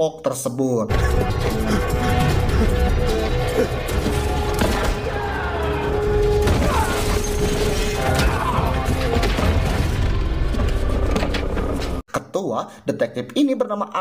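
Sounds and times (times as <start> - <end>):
film soundtrack music: 0.9 - 12.0
booms and crashing impacts: 1.3 - 12.0.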